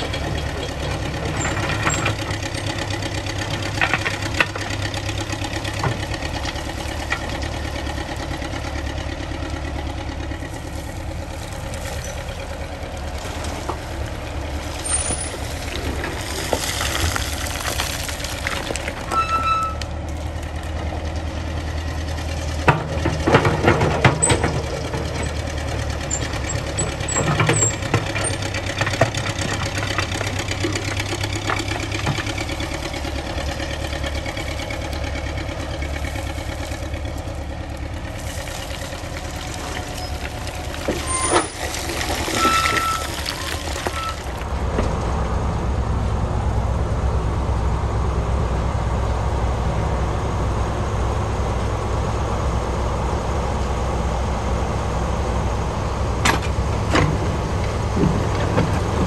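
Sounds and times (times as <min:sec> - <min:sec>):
bucket clattering and scraping rocks: 0:00.0 - 0:20.6, 0:22.6 - 0:44.6, 0:56.2 - 0:59.0
backhoe engine running: 0:00.0 - 0:59.0.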